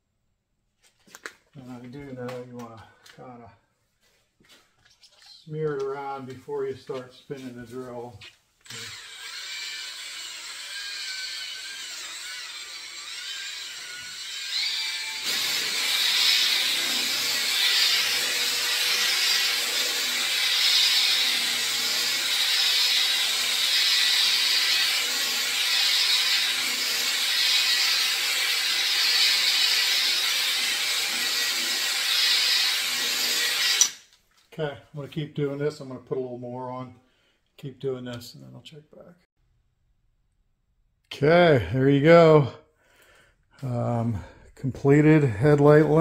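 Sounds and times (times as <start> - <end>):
cordless drill polishing plastic: 6.8 - 34.1.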